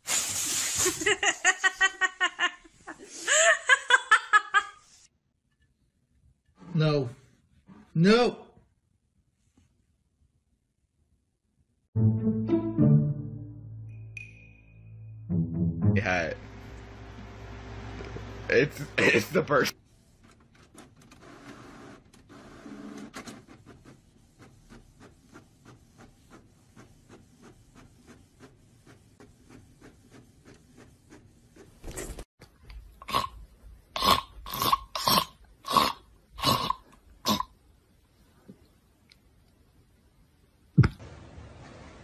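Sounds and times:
inkjet printer whirring: 21.1 - 31.2.

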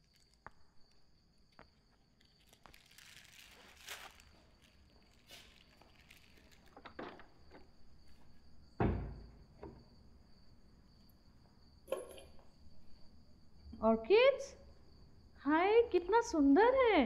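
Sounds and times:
rustles: 2.2 - 7.0
wooden door shutting thud: 8.8 - 9.8.

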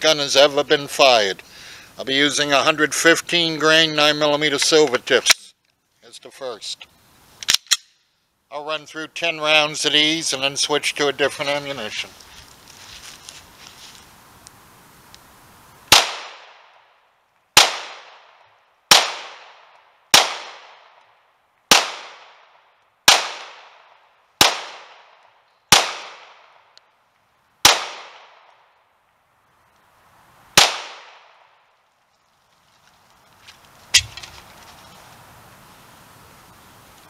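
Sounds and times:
pistol shots with echo: 15.9 - 16.7, 17.6 - 18.3, 18.9 - 19.6, 20.2 - 21.0, 21.7 - 22.4, 23.1 - 23.8, 24.4 - 25.1, 25.7 - 26.5, 27.6 - 28.4, 30.6 - 31.4.

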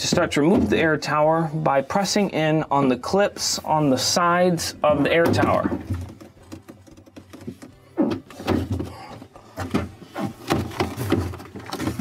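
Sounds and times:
plastic panel clicking and knocking: 5.2 - 8.9.

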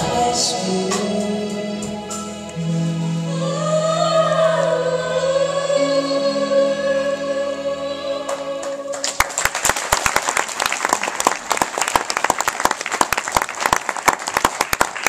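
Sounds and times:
audience applause: 8.9 - 15.0.

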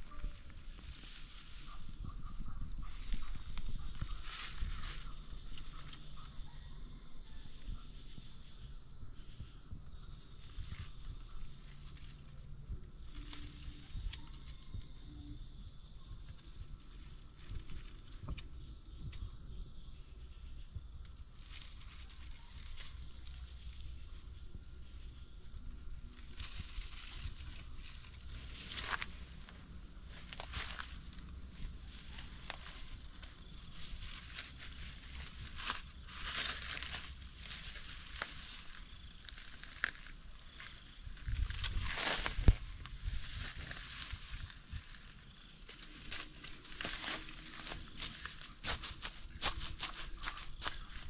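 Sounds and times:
insects trilling: 0.0 - 51.0
rustling of leaves: 2.8 - 6.1, 26.0 - 51.0.

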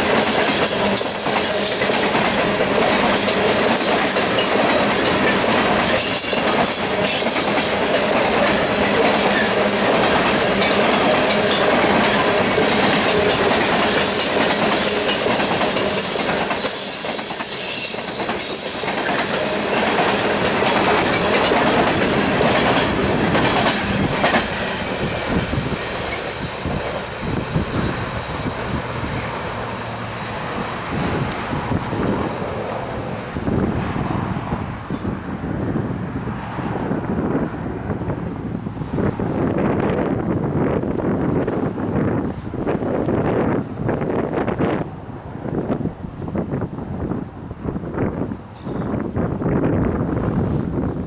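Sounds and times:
wheels clicking over rail joints: 0.0 - 29.6
freight train rumbling past: 0.0 - 51.0.

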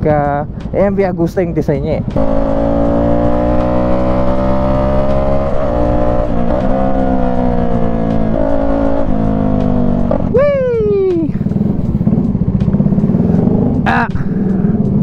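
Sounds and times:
motorcycle engine riding: 2.0 - 15.0
wind noise: 5.8 - 12.4.

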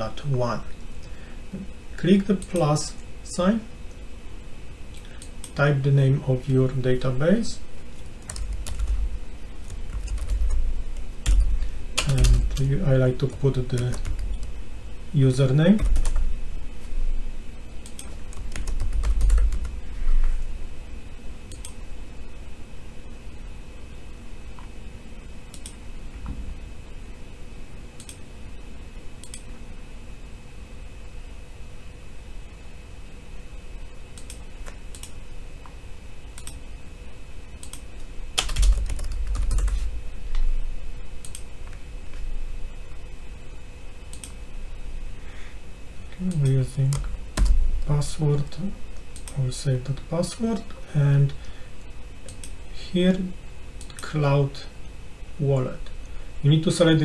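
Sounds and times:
typing on computer keyboard: 8.2 - 9.0, 9.7 - 10.6, 11.2 - 14.5, 15.8 - 16.2, 17.9 - 19.8, 38.4 - 39.9.

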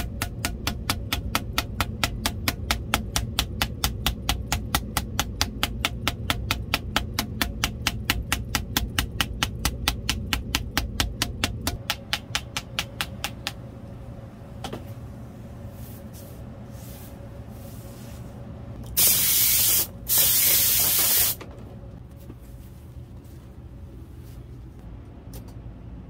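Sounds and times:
wooden mallet tapping: 0.0 - 13.6
compressed air blasts: 18.8 - 21.4.

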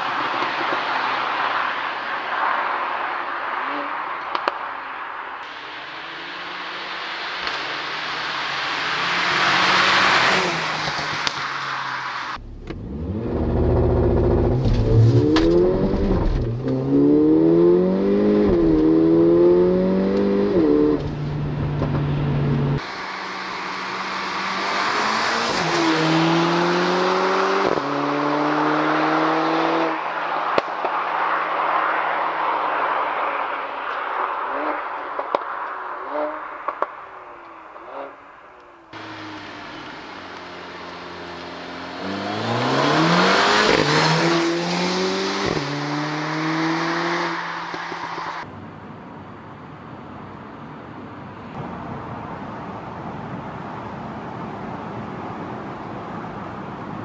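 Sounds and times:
car engine accelerating hard: 5.5 - 30.7, 38.9 - 48.5.

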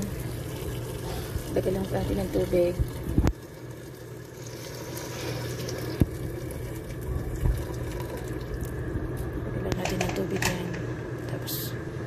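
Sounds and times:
water pouring into pot: 0.0 - 9.2.

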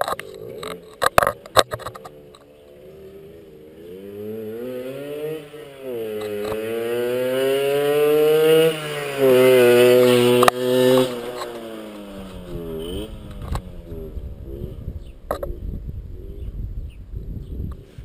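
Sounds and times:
moped engine passing by: 0.3 - 15.2.

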